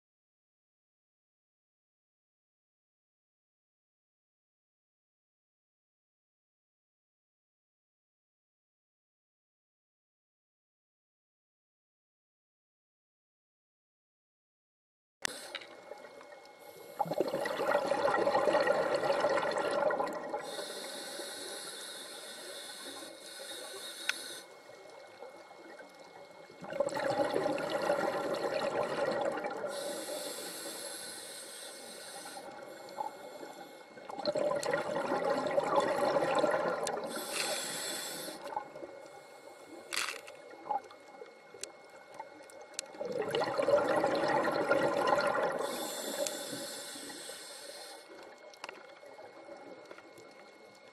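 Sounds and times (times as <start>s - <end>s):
regulator inhale hiss: 15.3s - 15.8s, 16.6s - 17.2s, 20.4s - 24.8s, 29.6s - 34.1s, 37.0s - 40.3s, 45.5s - 48.3s
diver exhaling bubbles: 16.9s - 21.0s, 26.6s - 30.9s, 34.1s - 38.9s, 42.9s - 47.3s.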